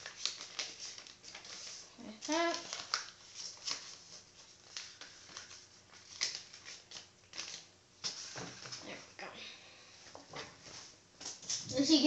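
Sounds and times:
paper rustling: 0.0s - 9.0s.

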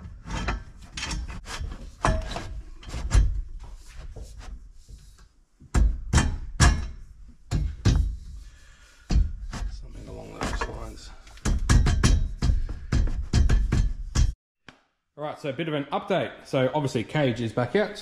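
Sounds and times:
metal parts knocking and thudding: 0.0s - 4.2s, 5.6s - 14.4s.

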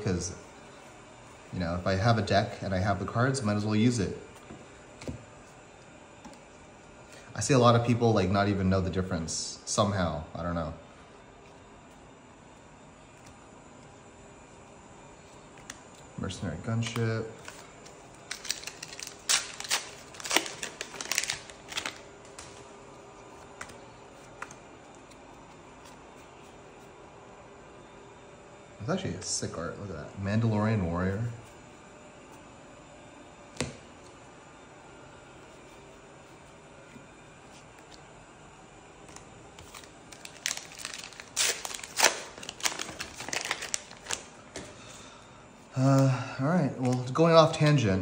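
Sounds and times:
trading cards clicking and rustling: 16.7s - 22.6s, 39.0s - 44.8s
foil wrapper crinkling: 16.7s - 22.7s, 39.0s - 44.8s.

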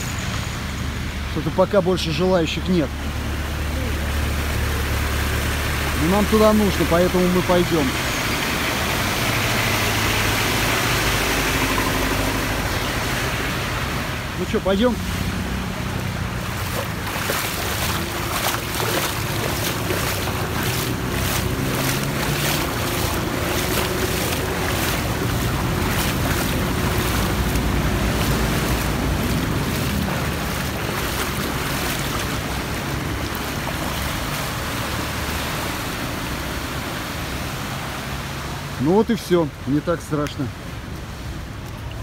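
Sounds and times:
rushing water: 0.0s - 42.0s
water sloshing and splashing: 2.0s - 42.0s
vehicle engine running: 14.5s - 32.0s.

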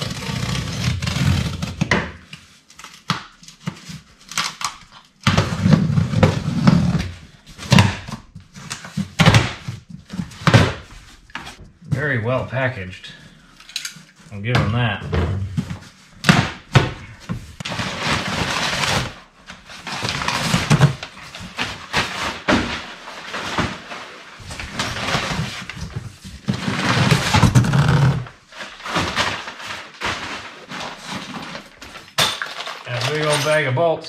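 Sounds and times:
packing paper rustling: 17.1s - 33.3s.

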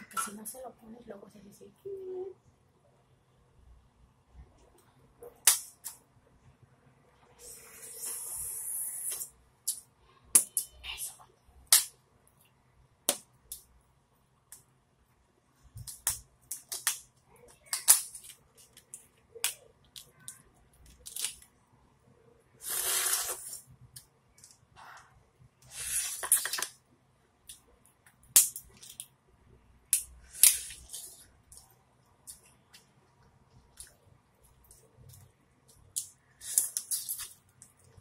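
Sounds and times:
hissy noise: 7.4s - 9.3s
lobster shell crackling and snapping: 20.8s - 21.4s.

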